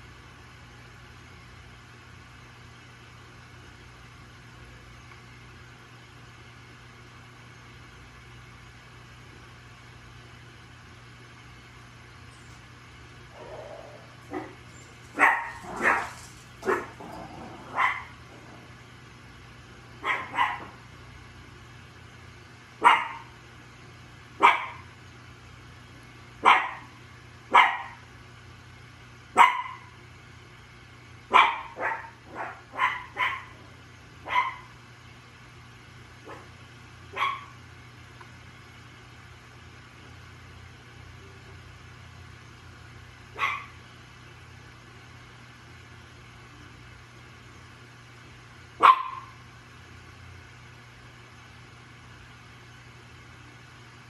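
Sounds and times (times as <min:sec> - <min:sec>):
steady low hum: 0:00.0 - 0:54.0
dog barking: 0:13.4 - 0:14.6, 0:15.2 - 0:17.0, 0:17.7 - 0:18.2, 0:20.0 - 0:20.8, 0:22.8 - 0:23.3, 0:24.4 - 0:24.8, 0:26.4 - 0:26.9, 0:27.5 - 0:28.0, 0:29.4 - 0:29.9, 0:31.3 - 0:33.6, 0:34.2 - 0:34.7, 0:36.3 - 0:36.5, 0:37.2 - 0:37.5, 0:43.4 - 0:43.8, 0:48.8 - 0:49.4.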